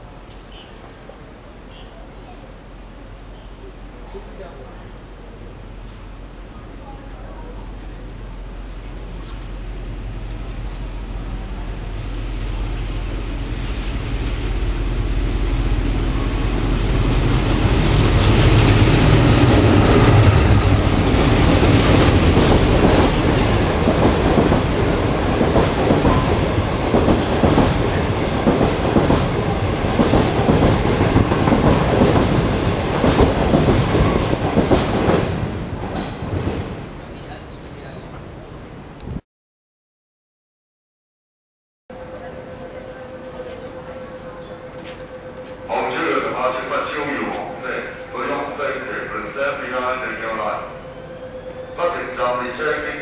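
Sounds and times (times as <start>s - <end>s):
passenger train passing: 0.0s - 39.2s, 41.9s - 53.0s
train wheels clacking over rail joints: 17.6s - 36.6s.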